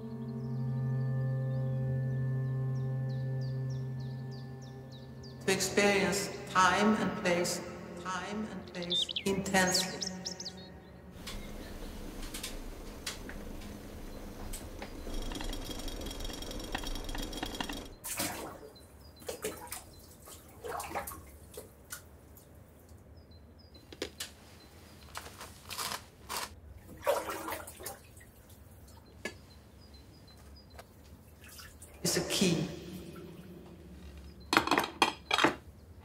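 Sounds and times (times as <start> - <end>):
water splashing and dripping: 16.7 - 23.0, 26.8 - 29.2, 31.2 - 32.0.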